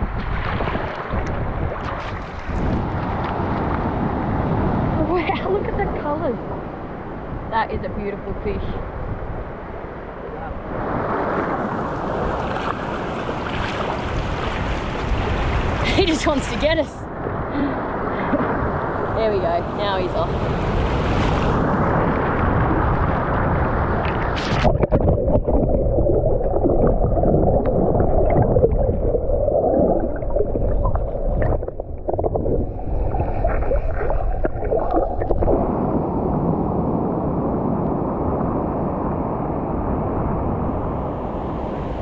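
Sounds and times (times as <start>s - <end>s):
small waves washing: 0.0s - 7.3s, 10.6s - 42.0s
seawater sloshing and splashing: 0.2s - 3.5s, 12.1s - 15.8s
underwater knocks and clicks: 24.0s - 32.7s
muffled underwater gurgling: 24.0s - 36.1s.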